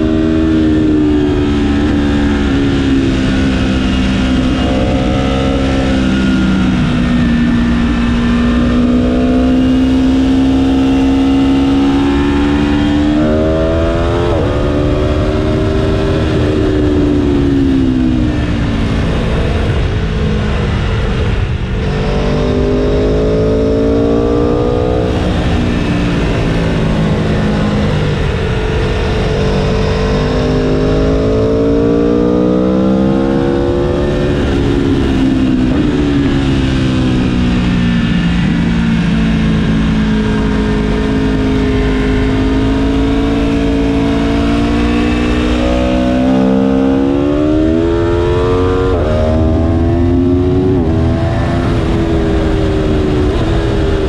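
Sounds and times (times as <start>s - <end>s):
motorcycle engine at full throttle: 0.0s - 54.0s
wind rush on microphone: 0.0s - 54.0s.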